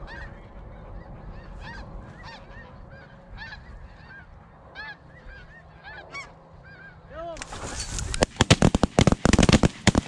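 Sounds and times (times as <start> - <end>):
geese honking: 0.0 - 7.1.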